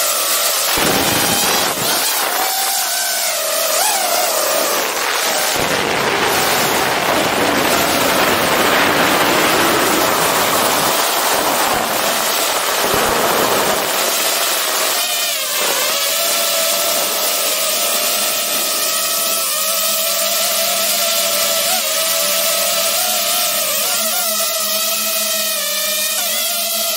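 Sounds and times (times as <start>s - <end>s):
drone propellers rushing: 0.0s - 19.6s
drone motor whine: 0.0s - 26.9s.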